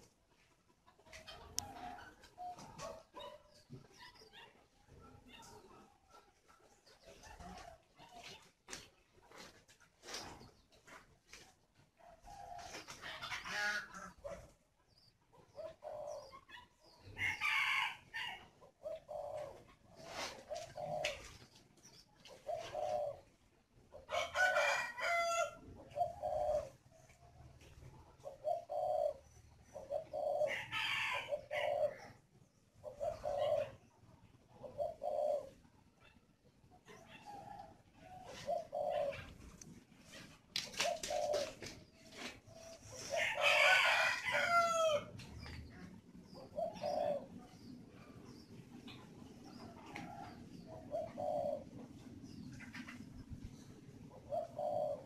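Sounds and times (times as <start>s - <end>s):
doves cooing: 0.0s - 55.0s.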